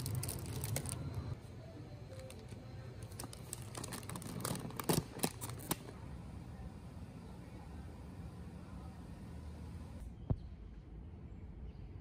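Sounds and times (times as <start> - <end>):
plastic wrappers crinkling: 0.0 - 1.4, 2.2 - 6.0.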